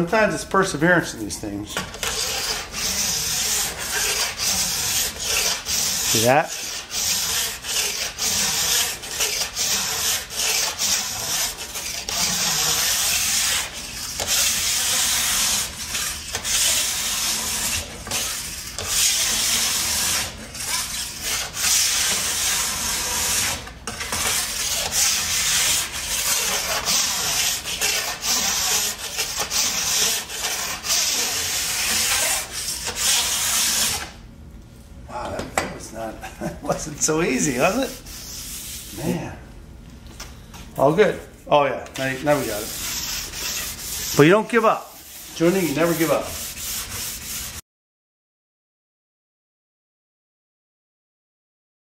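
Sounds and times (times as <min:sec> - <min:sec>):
tool scraping along a ski: 0:01.0 - 0:34.2, 0:42.0 - 0:47.6.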